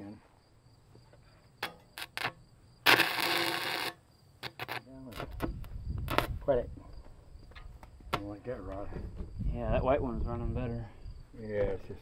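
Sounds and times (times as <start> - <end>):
welding arc crackling: 2.0 - 5.4.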